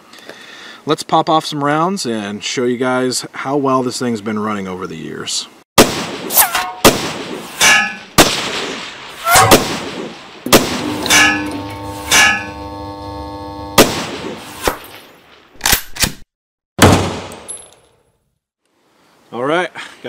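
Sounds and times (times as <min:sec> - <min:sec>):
gunshots: 0:05.8 - 0:11.5, 0:13.8 - 0:15.0, 0:16.8 - 0:17.5
bullets ringing on steel plate: 0:07.6 - 0:08.1, 0:11.0 - 0:12.6.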